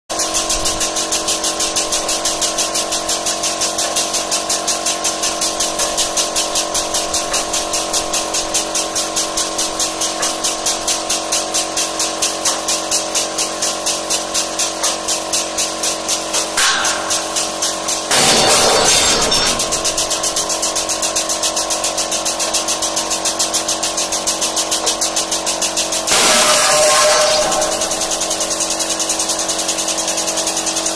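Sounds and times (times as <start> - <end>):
steady hum: 16.6 - 20.8, 26.1 - 28.7
steel weld cracking: 16.6 - 21.0, 26.1 - 28.9.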